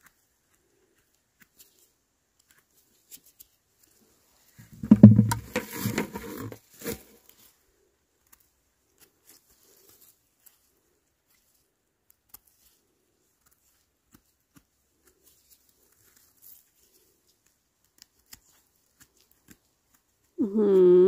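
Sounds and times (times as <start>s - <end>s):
knife scraping mushroom stem: 4.8s - 7.4s, 17.9s - 20.0s.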